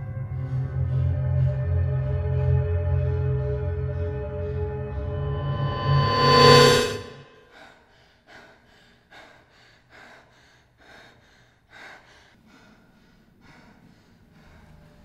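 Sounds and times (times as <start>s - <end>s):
woman breathing hard: 7.4s - 15.0s.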